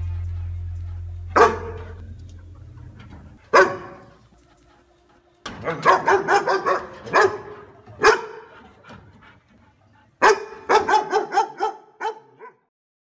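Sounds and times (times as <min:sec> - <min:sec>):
dog barking: 0:01.3 - 0:02.0, 0:03.4 - 0:04.2, 0:05.6 - 0:08.6, 0:10.2 - 0:12.7
dog yapping: 0:01.4 - 0:02.0, 0:03.4 - 0:04.2, 0:05.6 - 0:08.6, 0:10.2 - 0:12.6.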